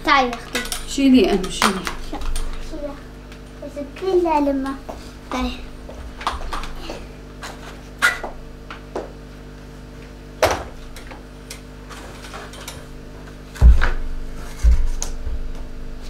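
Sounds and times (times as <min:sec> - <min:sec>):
steady low hum: 0:00.0 - 0:16.0
heavy thuds: 0:13.6 - 0:15.5.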